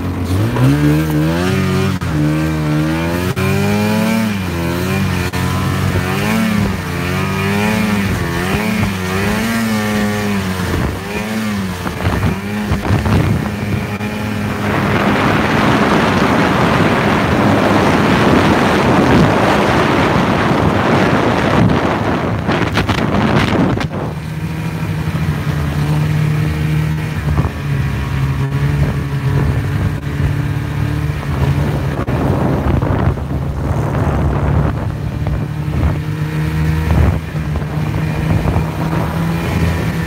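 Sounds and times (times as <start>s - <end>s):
snowmobile engine running: 0.0s - 40.0s
wind on microphone: 0.0s - 40.0s.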